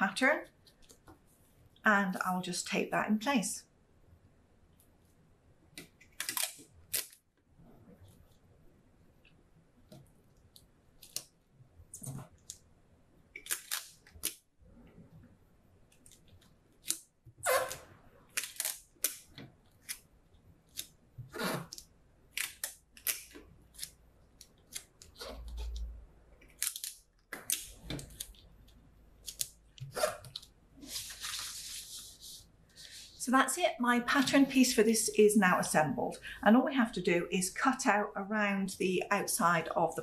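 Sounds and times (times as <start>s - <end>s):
paper sheets rustling and crinkling: 30.3s - 33.2s.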